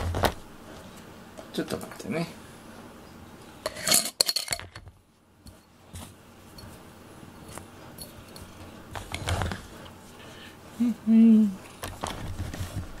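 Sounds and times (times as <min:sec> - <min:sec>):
rustling: 0:11.6 - 0:13.0.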